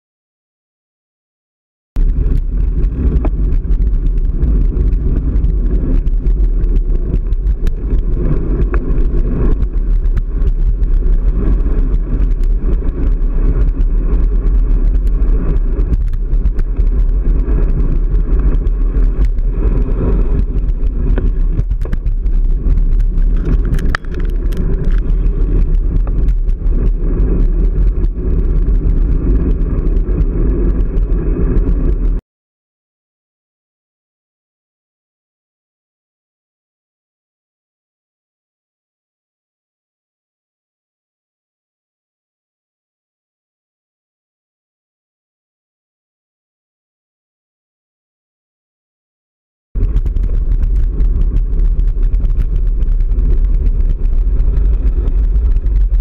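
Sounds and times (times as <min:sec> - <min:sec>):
road rumble: 0:02.0 - 0:32.2, 0:49.8 - 0:56.0
wind buffeting microphone: 0:02.0 - 0:32.2, 0:49.8 - 0:56.0.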